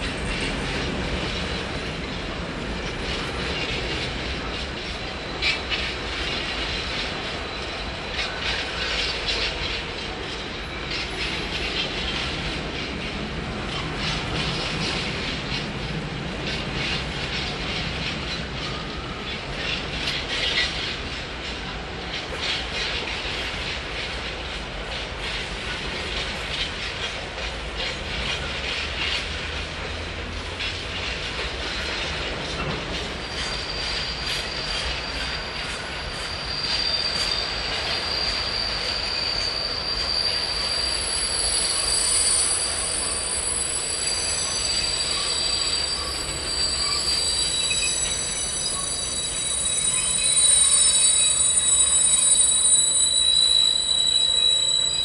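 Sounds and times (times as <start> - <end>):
train wheels clicking over rail joints: 0.0 - 55.0
high-pitched wheel squeal: 33.0 - 55.0.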